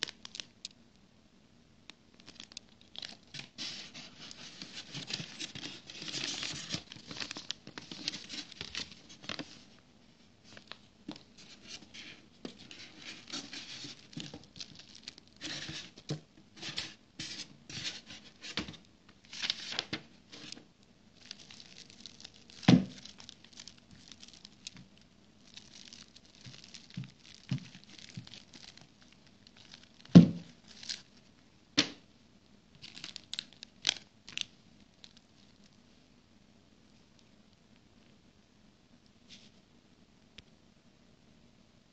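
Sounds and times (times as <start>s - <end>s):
plastic wrapping crinkling: 0.0s - 0.8s, 2.1s - 9.8s, 10.4s - 31.9s, 32.7s - 35.8s.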